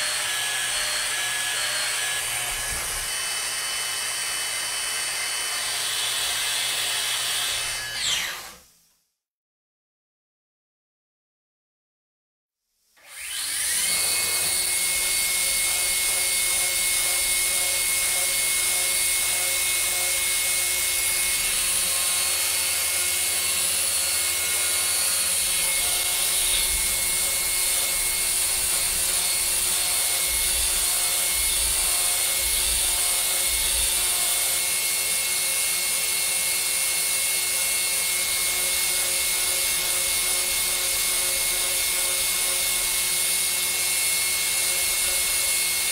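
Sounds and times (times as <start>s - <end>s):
milling spindle whine: 0.0s - 6.2s, 13.8s - 36.1s.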